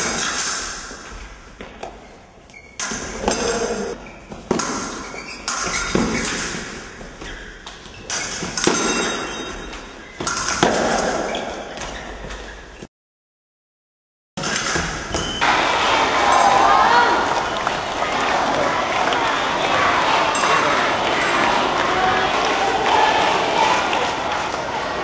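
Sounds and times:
fencing blades clinking: 2.8 - 3.9, 8.0 - 11.5.

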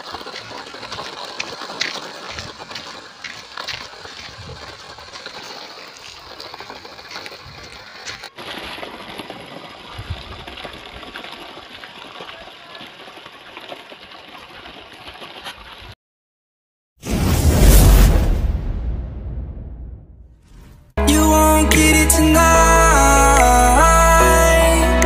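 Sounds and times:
wheels ticking on grit: 0.0 - 8.3.

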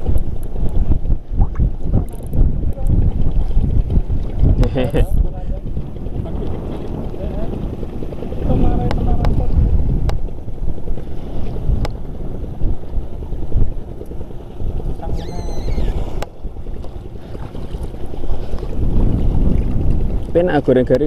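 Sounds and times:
sea water lapping: 0.0 - 21.0
wind buffeting microphone: 0.0 - 21.0
fishing tackle clicks: 2.0 - 2.9.

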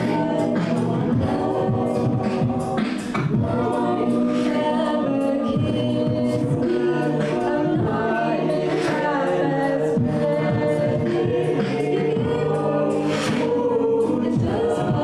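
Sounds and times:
a cappella group singing: 0.0 - 15.0.

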